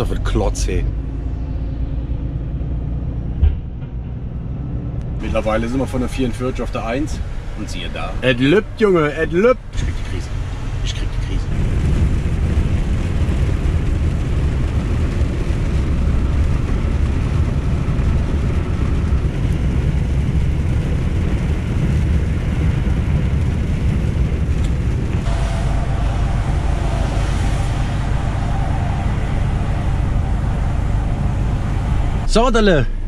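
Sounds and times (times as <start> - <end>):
truck engine and tyres rumbling: 0.0 - 33.0
faint droning tone: 25.2 - 33.0.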